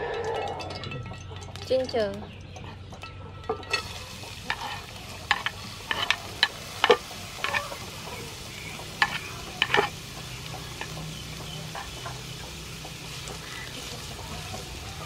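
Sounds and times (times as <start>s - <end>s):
metal spoon tapping and scraping board: 3.0s - 7.8s, 9.0s - 10.0s
ginger sizzling in hot oil: 3.6s - 15.0s.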